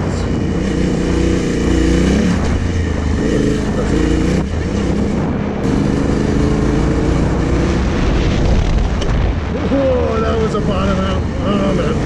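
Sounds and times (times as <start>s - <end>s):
motorcycle engine running: 0.0s - 9.2s
wind noise on microphone: 0.0s - 12.0s.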